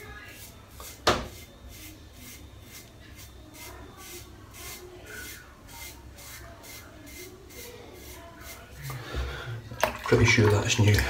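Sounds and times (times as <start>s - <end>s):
razor scraping stubble: 0.3s - 9.0s.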